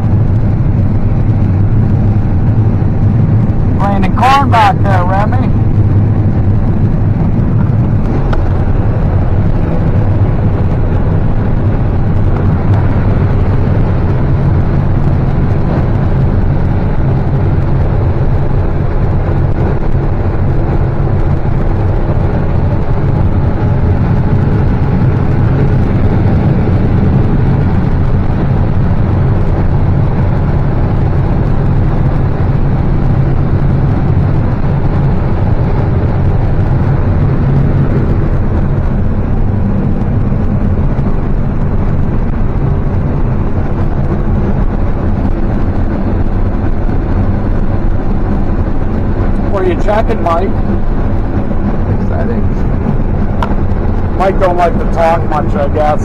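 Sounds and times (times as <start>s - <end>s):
combine harvester engine drone: 0.0s - 56.0s.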